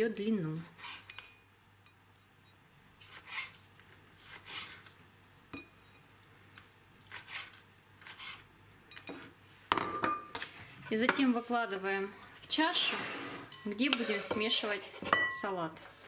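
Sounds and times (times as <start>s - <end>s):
knife cutting on wooden board: 3.0s - 3.6s, 4.2s - 4.9s, 7.1s - 8.5s.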